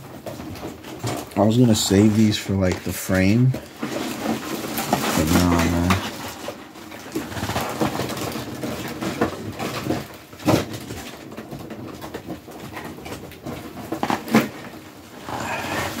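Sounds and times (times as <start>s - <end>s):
crackly packaging rustle: 0.0s - 16.0s.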